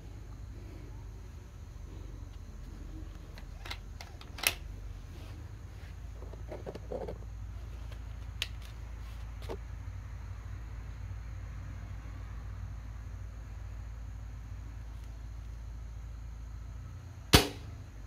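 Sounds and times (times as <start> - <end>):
steady low hum: 0.0 - 18.0
air rifle metallic clicks: 3.3 - 4.7
loud snap: 17.3 - 17.7.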